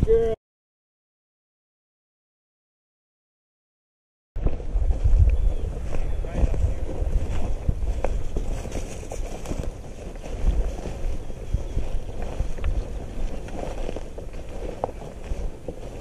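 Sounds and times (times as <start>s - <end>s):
footsteps through dry grass: 4.4s - 16.0s
wind buffeting microphone: 4.4s - 16.0s.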